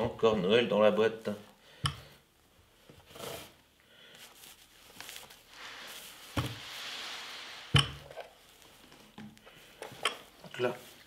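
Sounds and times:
protective wrapping rustling: 3.1s - 11.0s.

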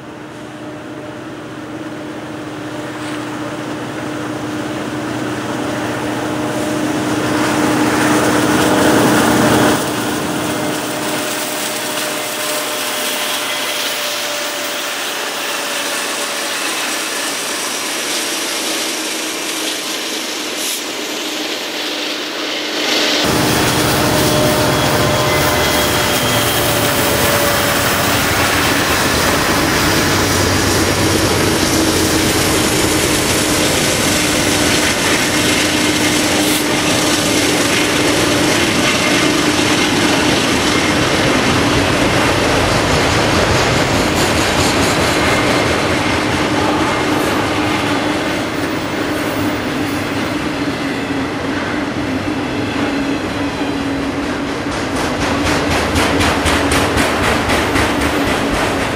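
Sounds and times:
train wheels rumbling on rails: 0.0s - 58.9s
wheels squealing: 10.4s - 51.4s.

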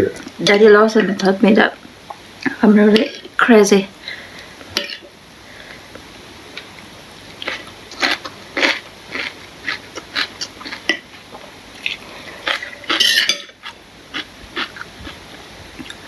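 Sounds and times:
cutlery clinking on ceramic bowl: 12.5s - 13.6s.

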